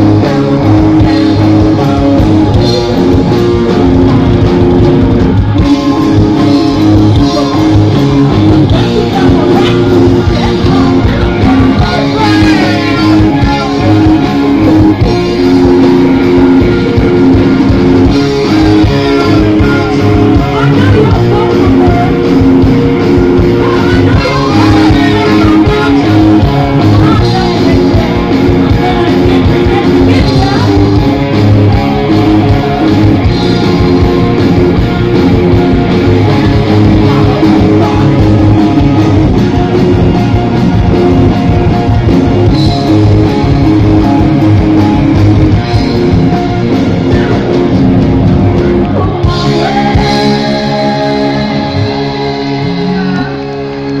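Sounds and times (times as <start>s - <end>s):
live rock band playing: 0.0s - 54.0s
person singing: 5.4s - 40.3s, 48.6s - 54.0s.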